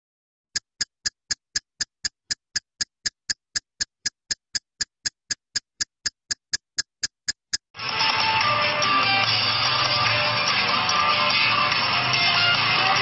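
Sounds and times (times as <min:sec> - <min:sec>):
short ticks: 0:00.6 - 0:07.8.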